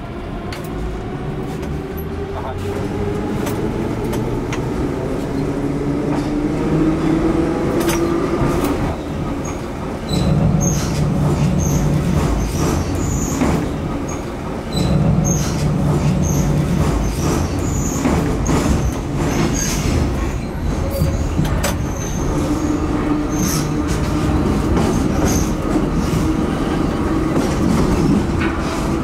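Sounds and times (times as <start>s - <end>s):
wheels rumbling on rail: 0.0s - 29.0s
high wheel squeaks: 9.0s - 13.4s, 14.0s - 25.7s.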